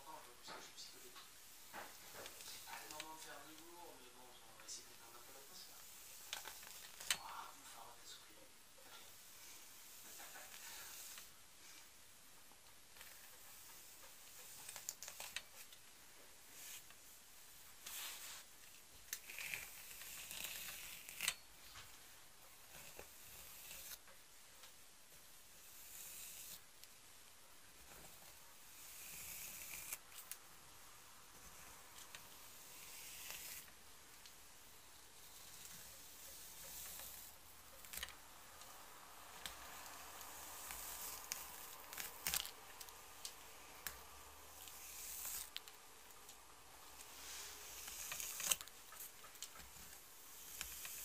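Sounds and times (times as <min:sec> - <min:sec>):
hairbrush swishing through hair: 0:09.4 - 0:11.4, 0:17.8 - 0:18.5.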